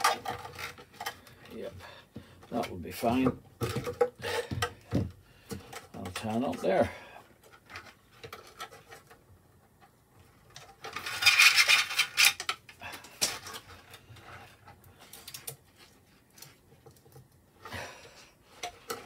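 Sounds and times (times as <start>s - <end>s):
cord rubbing and scraping: 0.0s - 9.4s, 10.2s - 17.7s
plastic clicks and knocks: 3.2s - 6.3s.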